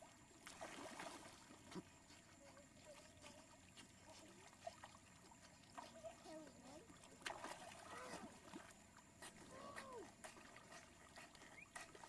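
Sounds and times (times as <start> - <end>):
faint water splashes: 0.0 - 12.0.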